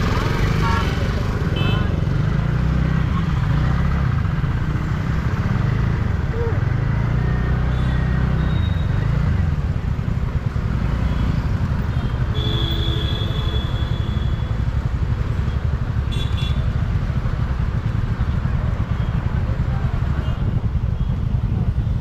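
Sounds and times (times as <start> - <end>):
car and motorbike engines: 0.0 - 22.0
vehicle horn: 0.6 - 2.0, 12.0 - 14.4, 16.1 - 16.7.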